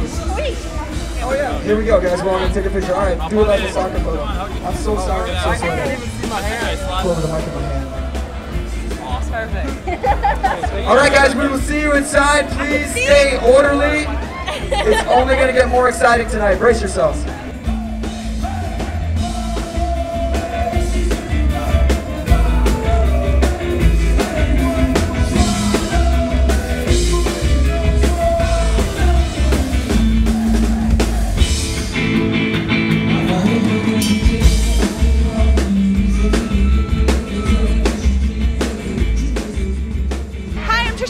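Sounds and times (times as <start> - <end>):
rock band playing: 0.0 - 41.0
person singing: 17.2 - 31.3, 33.0 - 41.0.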